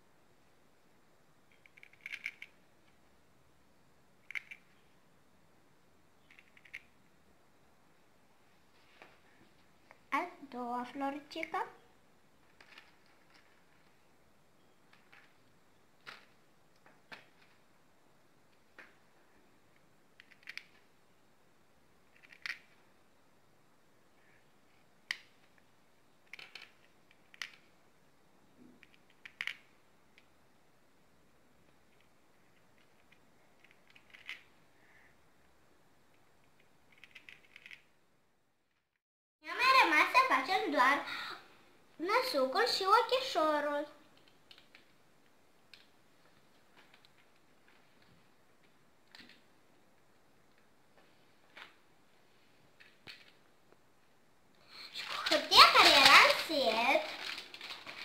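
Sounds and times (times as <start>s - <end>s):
plastic beads clicking: 1.5s - 3.0s, 4.2s - 4.8s, 6.2s - 7.0s, 22.1s - 22.8s, 26.2s - 27.7s, 31.9s - 34.5s, 36.4s - 37.9s, 44.2s - 45.0s.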